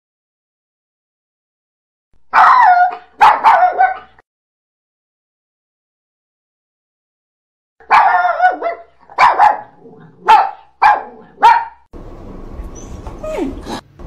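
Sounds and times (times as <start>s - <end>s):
dog barking: 2.3s - 4.2s, 7.8s - 11.9s.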